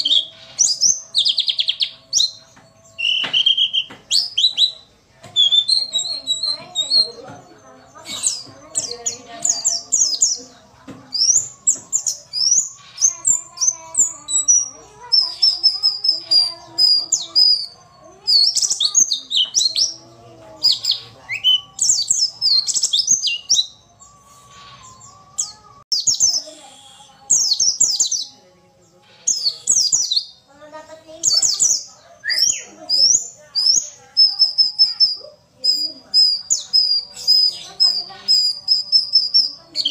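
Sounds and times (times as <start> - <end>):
bird twittering high chirps: 0.0 - 39.9.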